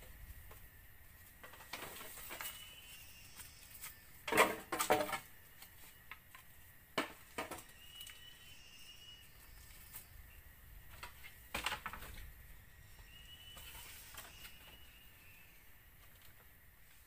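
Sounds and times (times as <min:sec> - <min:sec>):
bamboo poles clattering: 0:01.2 - 0:08.0, 0:10.9 - 0:12.4, 0:13.0 - 0:15.0.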